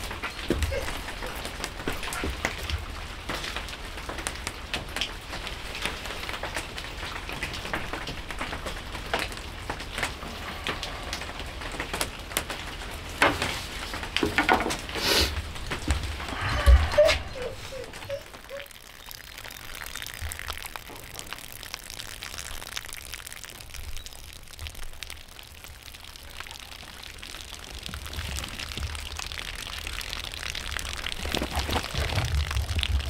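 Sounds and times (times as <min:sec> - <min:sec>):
light rain falling: 0:00.0 - 0:33.0
low rumble: 0:16.0 - 0:18.1.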